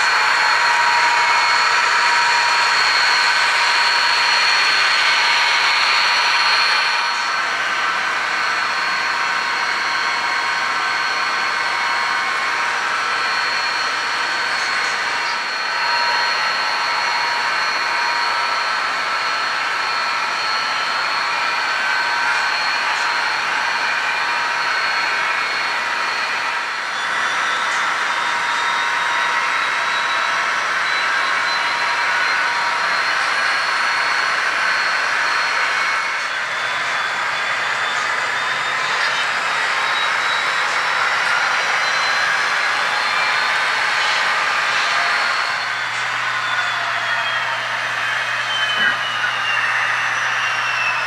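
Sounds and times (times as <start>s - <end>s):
model trains whirring and whining: 0.0s - 51.0s.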